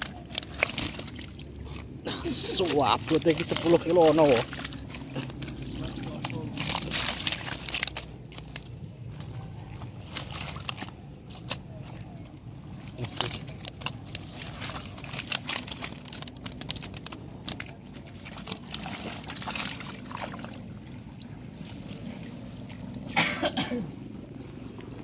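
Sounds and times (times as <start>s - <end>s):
fish flapping in net: 0.0s - 12.1s, 12.8s - 20.5s
netting rustling: 2.3s - 12.1s, 12.8s - 20.2s.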